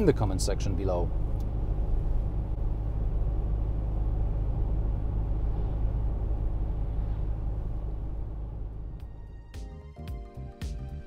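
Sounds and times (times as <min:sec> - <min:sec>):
diesel engine running: 0:00.0 - 0:09.7.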